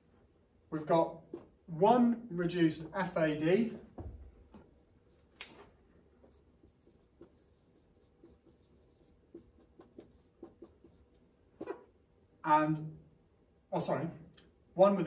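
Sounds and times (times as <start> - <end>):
marker squeaking on whiteboard: 6.2 - 12.0.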